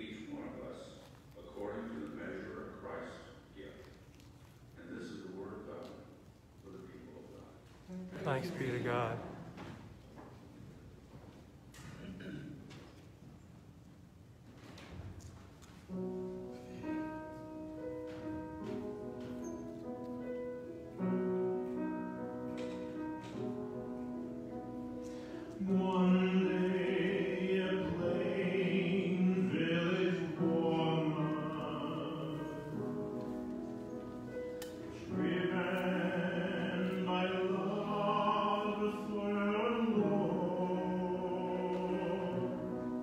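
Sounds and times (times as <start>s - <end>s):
man singing with vibrato: 25.6s - 33.0s, 35.0s - 43.0s.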